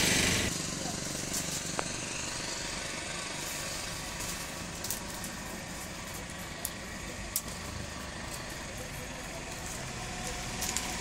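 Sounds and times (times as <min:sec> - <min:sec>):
bamboo strips clicking: 0:06.1 - 0:07.6, 0:09.5 - 0:11.0.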